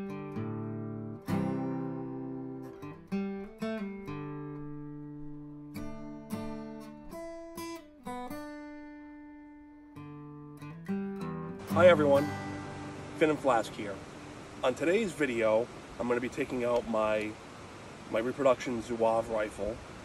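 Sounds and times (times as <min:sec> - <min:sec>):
acoustic guitar chords: 0:00.0 - 0:17.2.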